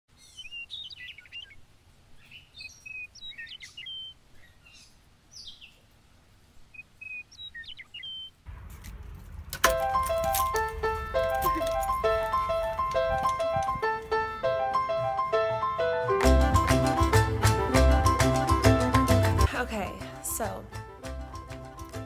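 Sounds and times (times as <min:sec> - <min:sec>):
birds chirping and trilling: 0:00.1 - 0:05.9, 0:06.6 - 0:08.4
low background rumble: 0:08.5 - 0:14.6
music: 0:09.6 - 0:22.0.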